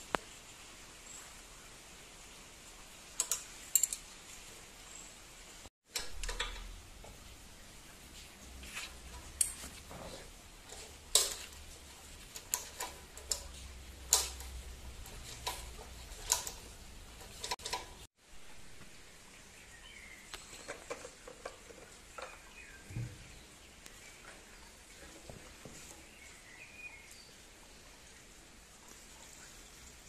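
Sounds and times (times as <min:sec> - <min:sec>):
spanners clinking on metal nuts: 0:03.2 - 0:04.1.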